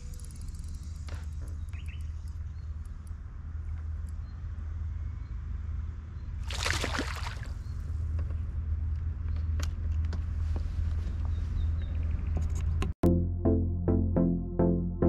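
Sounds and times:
water splash: 6.4s - 7.6s.

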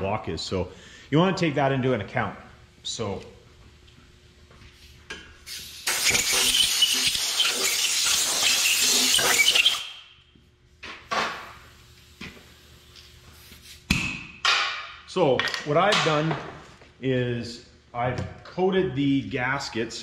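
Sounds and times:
air blow gun hissing: 5.4s - 10.0s.

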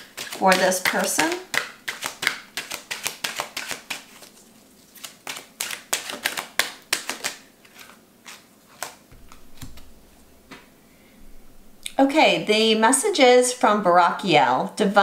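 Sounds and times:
cards being shuffled: 0.0s - 10.6s
card taps: 8.8s - 9.9s.

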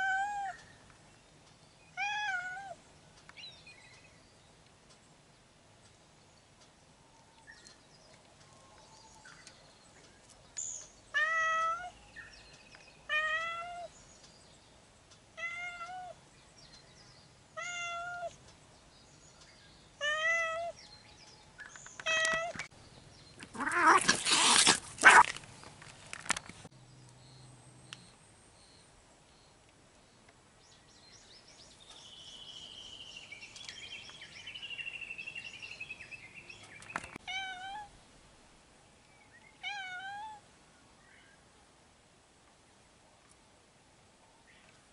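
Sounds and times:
cat meowing: 0.0s - 0.6s, 2.0s - 2.8s, 17.6s - 18.4s, 20.0s - 20.8s, 23.6s - 24.1s, 37.2s - 37.9s, 39.6s - 40.4s.

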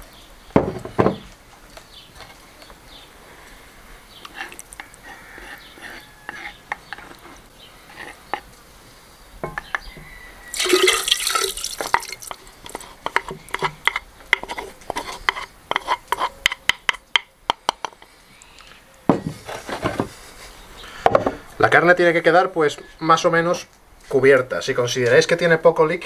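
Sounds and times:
spoon scraping bowl: 4.2s - 8.5s, 10.6s - 17.0s
liquid pouring into pot: 10.5s - 12.4s.

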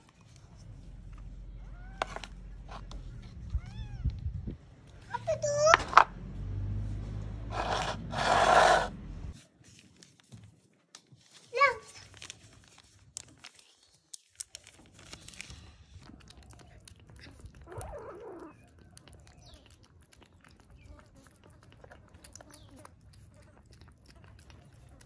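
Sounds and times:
kitten chewing wet food: 12.9s - 25.0s.

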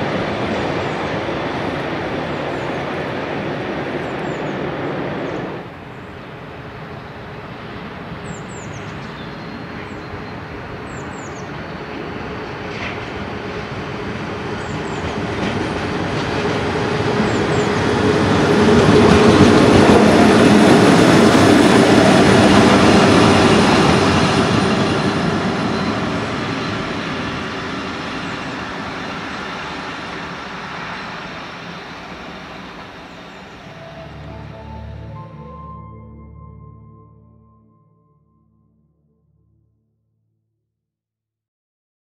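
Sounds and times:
locomotive steady hum: 9.6s - 37.2s
train wheels clattering over rails: 10.5s - 33.6s.

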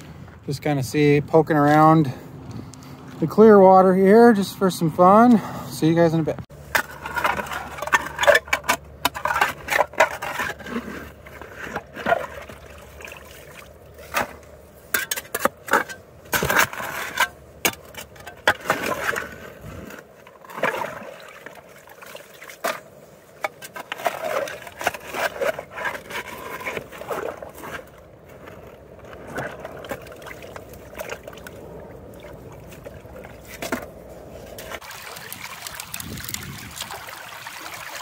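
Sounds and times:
shovel scraping and crunching gravel: 6.5s - 31.3s, 32.6s - 37.0s.

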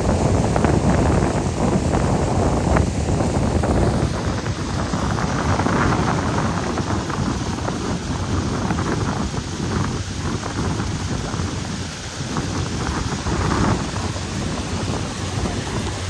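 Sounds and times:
boat running noise: 0.0s - 16.0s
wind buffeting microphone: 0.0s - 16.0s.

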